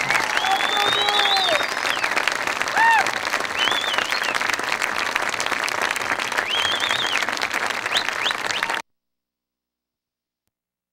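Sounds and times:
high wavering cheer: 0:00.0 - 0:04.3
crowd applauding and cheering: 0:00.0 - 0:08.8.

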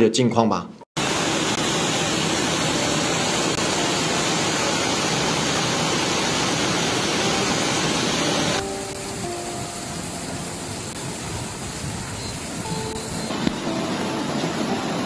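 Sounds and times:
floodwater rushing: 0:01.0 - 0:15.0.

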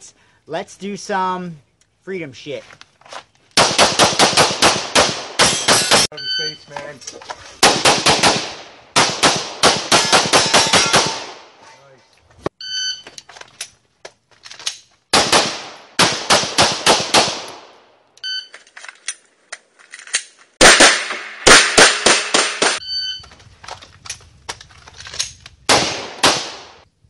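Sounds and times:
pistol shots: 0:03.6 - 0:06.1, 0:07.6 - 0:11.5, 0:15.1 - 0:17.7, 0:20.6 - 0:22.8, 0:25.7 - 0:26.8
short electronic beep: 0:06.1 - 0:06.7, 0:12.6 - 0:13.2, 0:18.2 - 0:18.6, 0:22.8 - 0:23.3.

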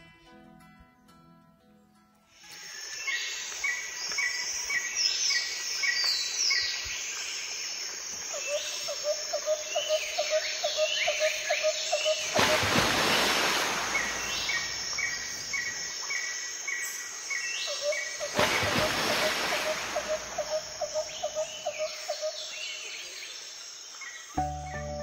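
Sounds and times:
birds chirping: 0:09.7 - 0:15.9, 0:17.7 - 0:22.4.

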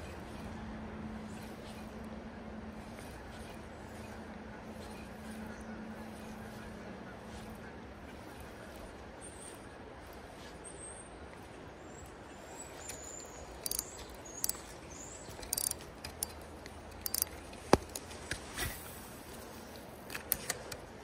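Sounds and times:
fishing reel clicks: 0:12.9 - 0:14.7, 0:15.3 - 0:18.0.

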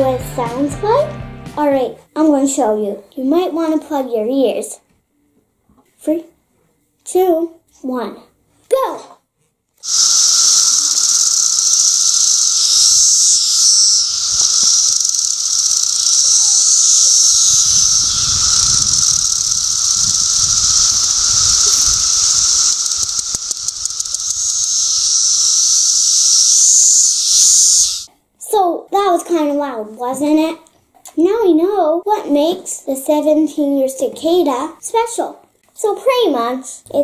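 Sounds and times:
cicadas chorus hissing: 0:09.8 - 0:28.1
fast pulsing buzz: 0:09.8 - 0:28.1.

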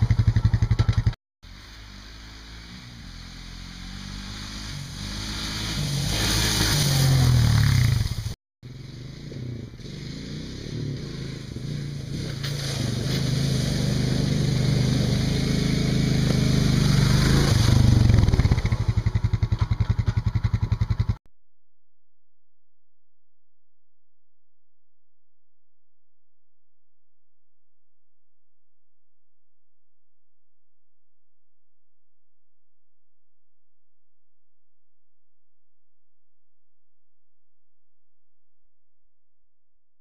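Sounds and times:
quad engine running: 0:00.0 - 0:21.2.

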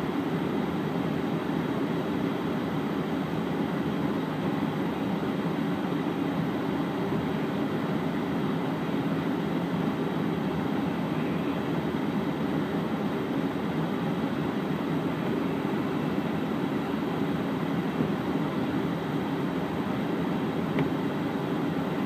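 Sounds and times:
vehicle engine and tyre noise: 0:06.1 - 0:22.0.

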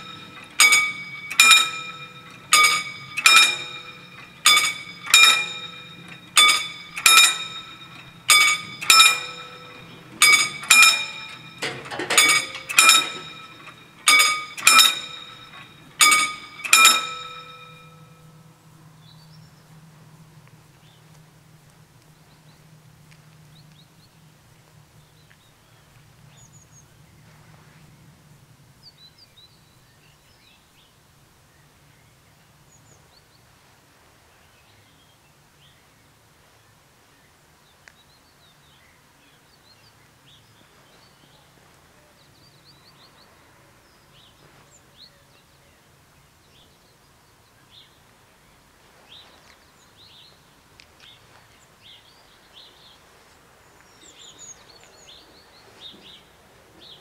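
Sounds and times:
level crossing bells ringing: 0:00.0 - 0:18.5.

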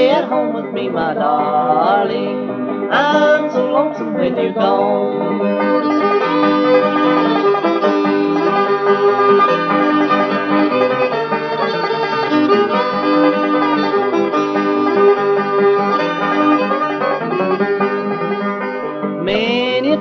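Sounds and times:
picked banjo: 0:00.0 - 0:20.0
strummed guitars: 0:00.0 - 0:20.0
fiddle playing held notes: 0:04.3 - 0:18.6.

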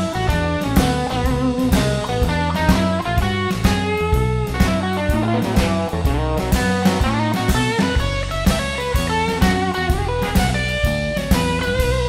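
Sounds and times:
electric guitar: 0:00.0 - 0:12.0
steady drum beat: 0:00.0 - 0:12.0.

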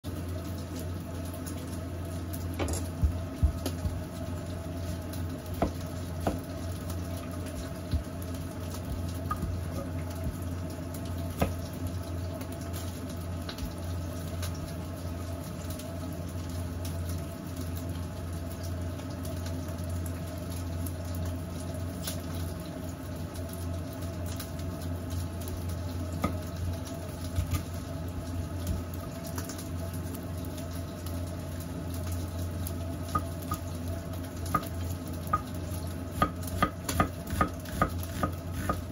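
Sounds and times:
steady low hum: 0:00.1 - 0:16.8
knife knocking on cutting board: 0:05.6 - 0:06.4.

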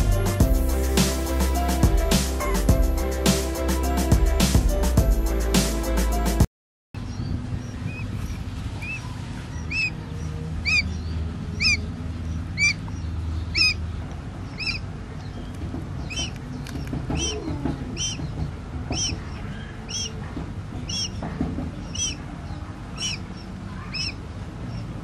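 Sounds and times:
quail chick peeping: 0:07.1 - 0:25.0.

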